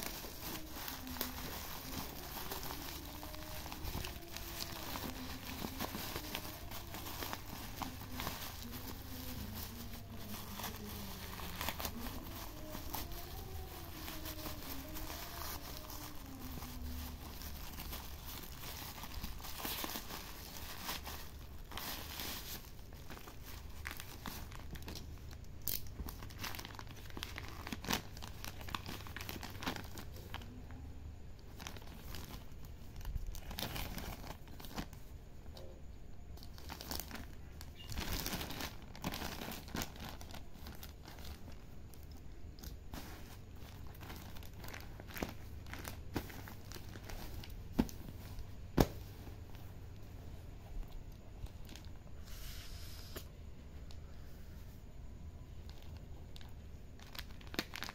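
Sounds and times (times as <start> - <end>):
plastic bag ripping: 0.0 - 30.5, 31.4 - 35.0, 36.4 - 41.6, 57.0 - 57.9
plastic packaging crinkling: 0.0 - 49.7, 50.7 - 52.2, 55.4 - 57.9.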